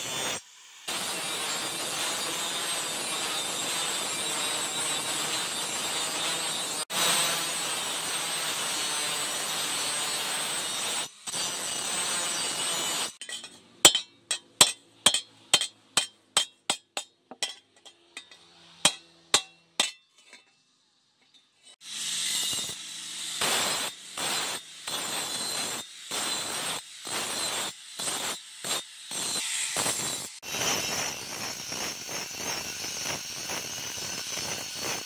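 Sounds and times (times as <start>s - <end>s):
hammer striking metal: 13.2s - 20.6s.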